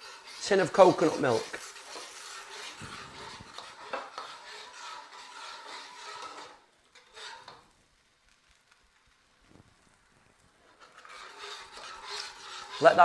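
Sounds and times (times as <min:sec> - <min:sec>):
metal spatula scraping a wok: 0:00.0 - 0:07.7, 0:10.3 - 0:13.0.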